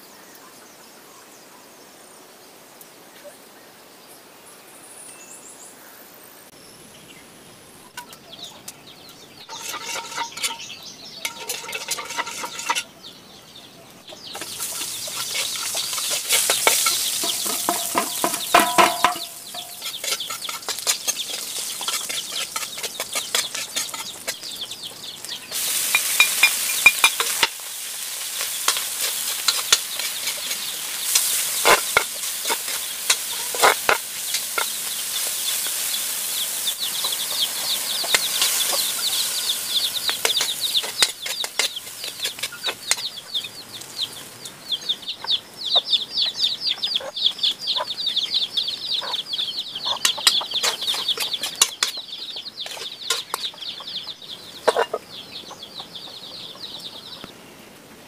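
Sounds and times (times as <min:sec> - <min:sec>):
chickens clucking: 0:07.8 - 0:57.4
chicken sizzling in a pan: 0:09.4 - 0:12.9, 0:14.1 - 0:44.8, 0:49.1 - 0:53.6
spatula scraping a pan: 0:09.4 - 0:13.0, 0:14.2 - 0:24.8, 0:25.5 - 0:43.2, 0:50.0 - 0:52.0, 0:52.6 - 0:53.6.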